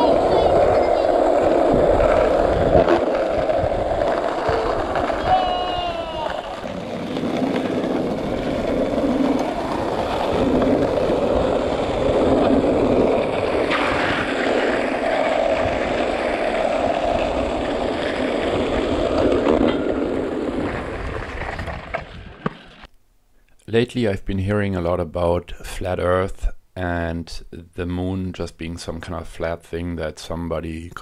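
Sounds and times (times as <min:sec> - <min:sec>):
skateboard wheels rolling on asphalt: 0:00.0 - 0:22.9
sharp skateboard clacks: 0:00.1 - 0:22.9.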